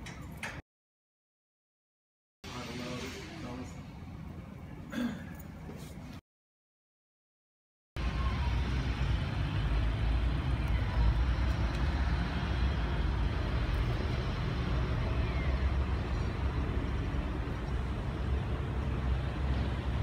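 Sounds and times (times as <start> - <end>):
low street rumble: 2.5 - 6.2, 8.0 - 20.0.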